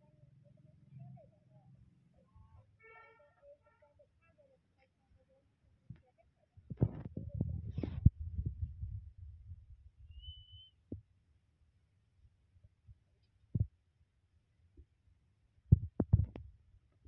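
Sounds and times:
short high whistle: 10.2s - 10.8s.

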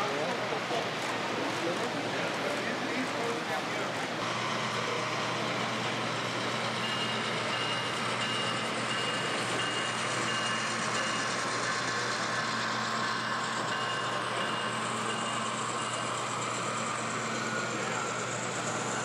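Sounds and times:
busy hall background noise: 0.0s - 19.0s.

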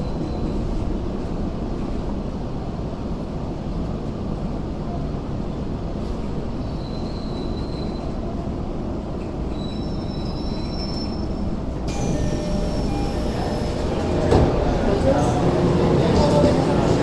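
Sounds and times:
subway train rumble: 0.0s - 17.0s
high wheel squeals: 9.5s - 14.3s.

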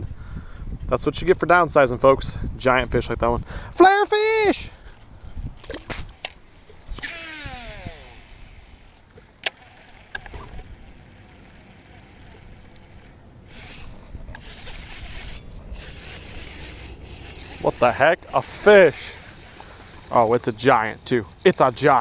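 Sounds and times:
wind and water hiss: 3.4s - 22.0s
fishing rod and reel handling: 5.2s - 22.0s.

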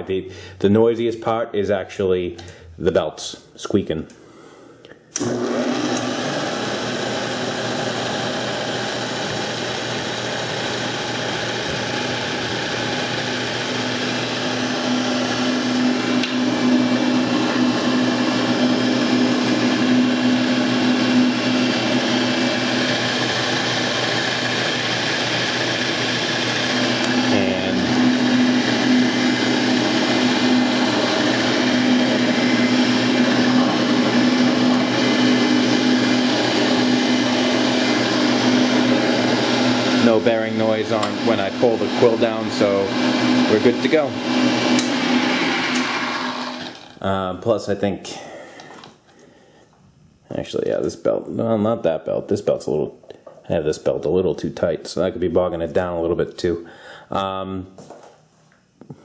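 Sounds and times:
drill press motor humming: 5.1s - 47.0s
drill press switch: 16.2s - 16.4s, 41.0s - 41.2s, 44.7s - 45.1s.

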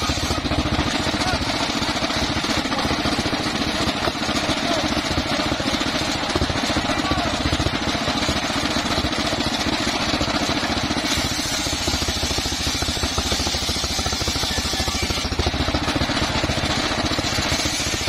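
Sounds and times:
saw blade hissing through wood: 0.0s - 0.6s, 10.8s - 15.4s, 17.1s - 18.0s
engine pulsing: 0.0s - 18.0s.

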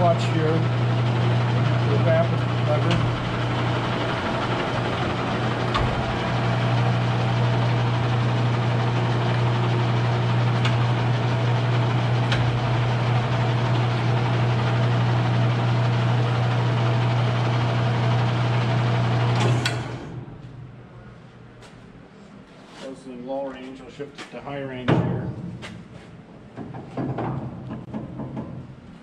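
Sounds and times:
lathe spinning down: 0.0s - 20.3s
lathe motor and gearbox hum: 0.0s - 22.0s.

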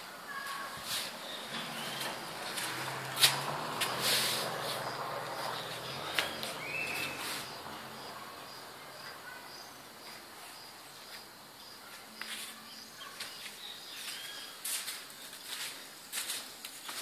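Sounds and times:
bird calls: 0.0s - 15.6s
insect chirping: 0.0s - 16.2s
knocks and scuffs: 0.4s - 7.6s.

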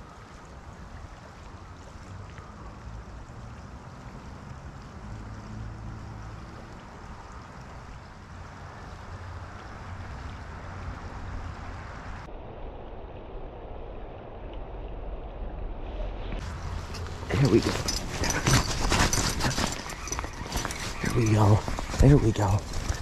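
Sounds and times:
river flowing: 0.0s - 12.3s, 16.4s - 23.0s
low rumble: 12.2s - 19.3s.

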